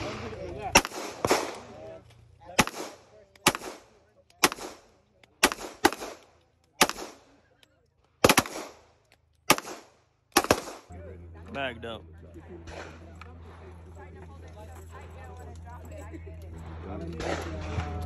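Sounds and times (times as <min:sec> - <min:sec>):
handgun shots: 0:00.7 - 0:01.7, 0:02.6 - 0:07.2, 0:08.2 - 0:08.8, 0:09.4 - 0:10.9.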